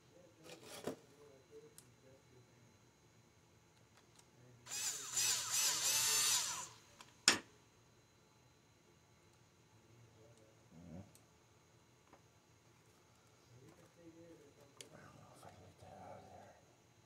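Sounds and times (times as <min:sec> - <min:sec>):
cordless drill running: 0:04.7 - 0:06.9.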